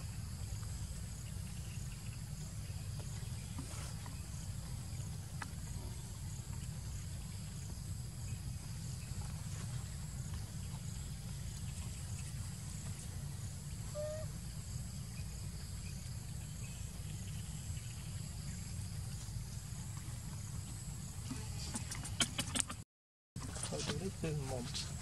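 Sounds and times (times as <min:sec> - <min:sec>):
insects trilling: 0:00.0 - 0:21.9
low steady rumble: 0:00.0 - 0:22.1.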